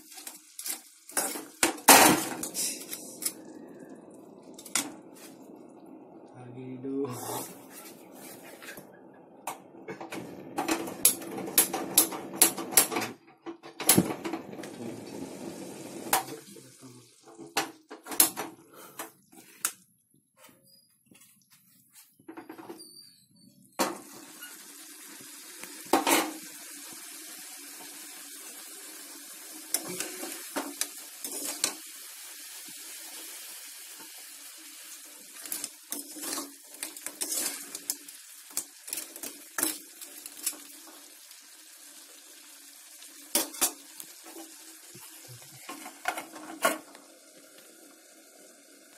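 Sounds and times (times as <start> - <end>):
curry sizzling in a pot: 0.0 - 8.9, 14.0 - 18.4, 23.8 - 48.9.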